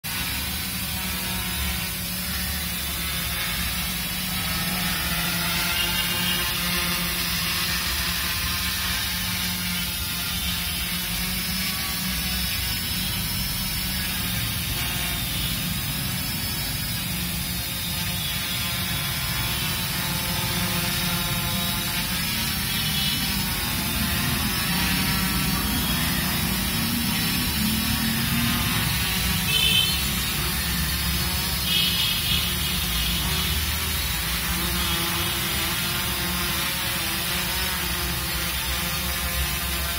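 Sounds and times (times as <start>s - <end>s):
quadcopter motors humming: 0.0s - 39.9s.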